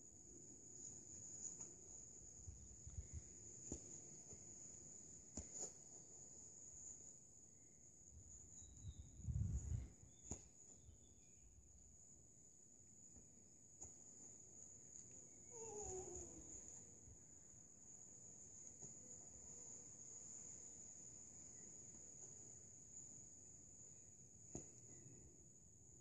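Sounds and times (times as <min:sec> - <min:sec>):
low rumbles on microphone: 0:08.8 - 0:10.1.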